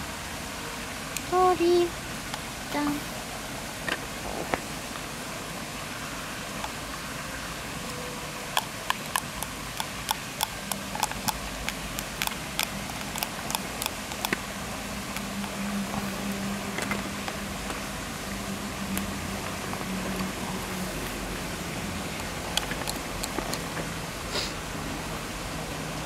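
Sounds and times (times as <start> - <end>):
plastic spoon clicking on cup: 8.6 - 14.4, 15.1 - 15.6, 22.5 - 23.7.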